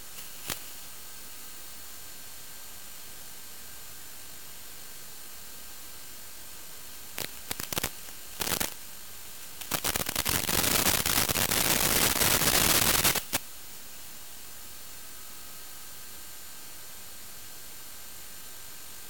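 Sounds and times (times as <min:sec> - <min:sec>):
crackling static: 0:00.0 - 0:01.4, 0:06.8 - 0:13.5
steady radio hiss: 0:00.0 - 0:19.0.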